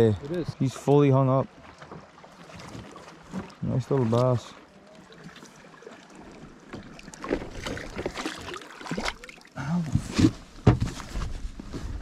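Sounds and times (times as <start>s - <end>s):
light water splashing: 0.0s - 10.0s
knocks on aluminum boat: 10.6s - 11.0s.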